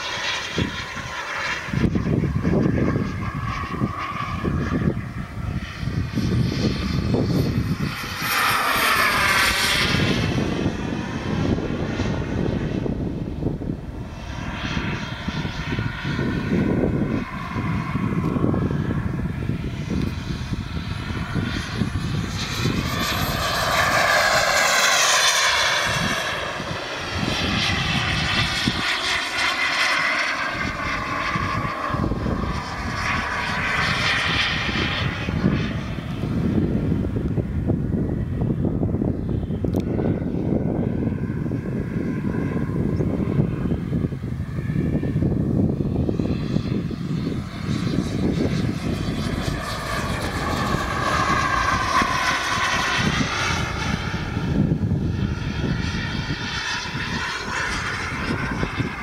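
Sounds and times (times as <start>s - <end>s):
model jet turbine whine: 0.0s - 59.0s.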